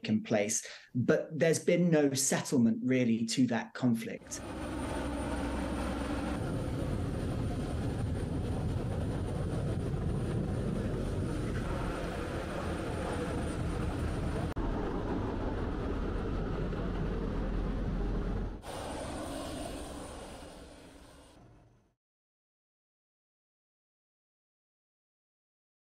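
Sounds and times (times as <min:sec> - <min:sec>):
aircraft rumble: 0:04.2 - 0:21.8.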